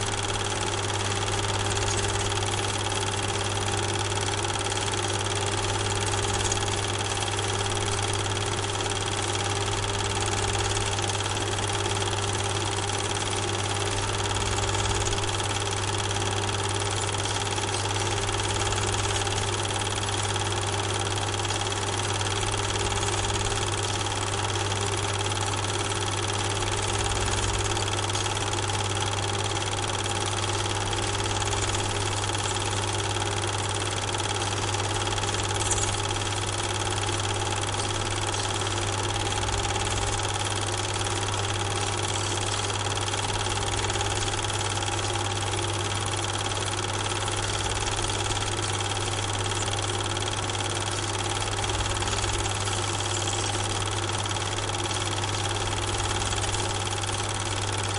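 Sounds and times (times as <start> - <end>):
mechanical hum: 0.0 - 57.9.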